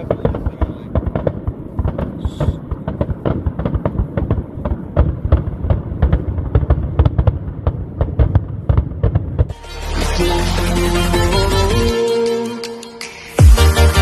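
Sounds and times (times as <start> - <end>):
low firework booms: 0.0 - 9.6
fireworks bangs and crackles: 0.0 - 11.7.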